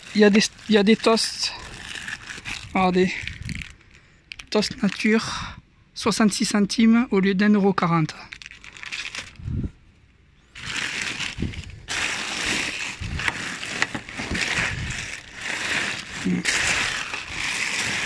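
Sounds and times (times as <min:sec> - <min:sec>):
plastic bags rustling: 0:00.0 - 0:05.1, 0:08.3 - 0:09.6, 0:10.5 - 0:18.0.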